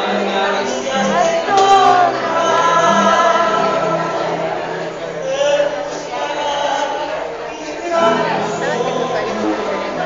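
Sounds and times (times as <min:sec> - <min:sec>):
violin ensemble playing: 0:00.0 - 0:05.6.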